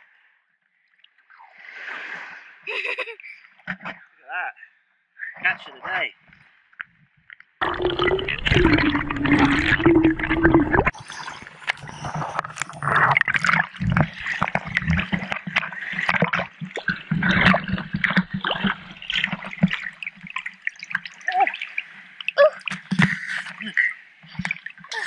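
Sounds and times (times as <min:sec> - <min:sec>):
muffled underwater rush: 0:07.6 - 0:23.4
net splashing through water: 0:11.9 - 0:21.9.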